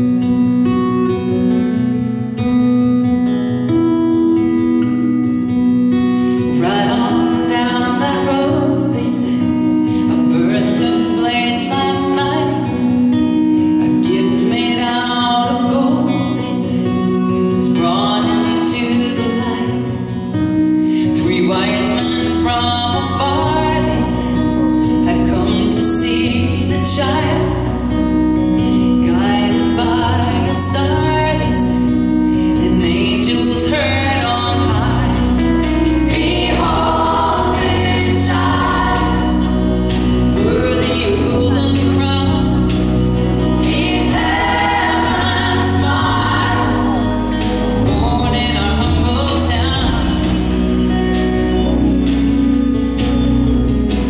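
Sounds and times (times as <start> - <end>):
strummed acoustic guitar: 0.0 - 54.0
woman singing into microphone: 6.4 - 13.2, 13.8 - 20.3, 20.9 - 27.9, 28.9 - 50.5
low bass notes: 21.6 - 54.0.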